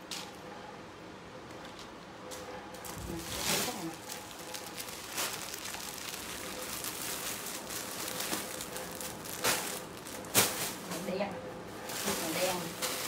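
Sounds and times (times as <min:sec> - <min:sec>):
plastic bags rustling: 0:02.8 - 0:13.0.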